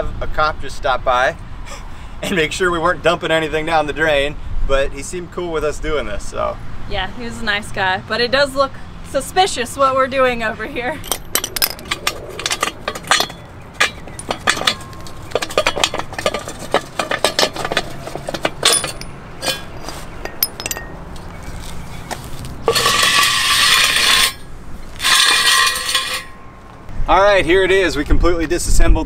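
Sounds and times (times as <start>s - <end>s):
metal parts clinking: 11.0s - 21.0s, 22.7s - 24.4s, 25.0s - 26.4s
metal cylinder scraping in tube: 22.6s - 26.3s.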